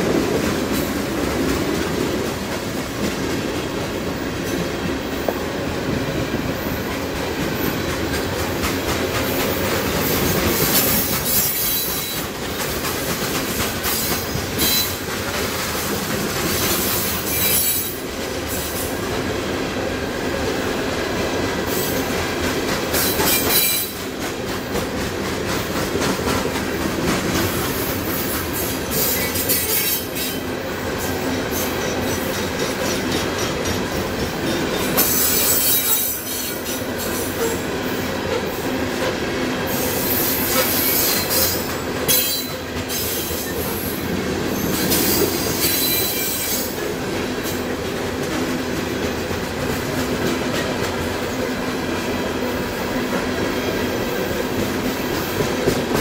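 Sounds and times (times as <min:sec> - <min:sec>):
train wheels clattering over rail joints: 0:00.0 - 0:18.9, 0:21.6 - 0:37.6.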